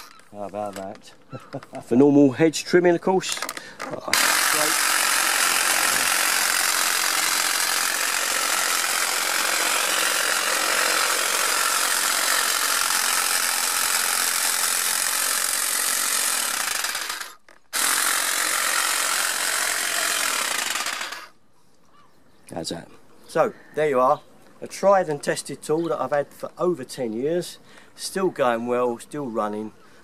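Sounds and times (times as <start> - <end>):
electric hedge trimmer running: 4.1 - 21.3.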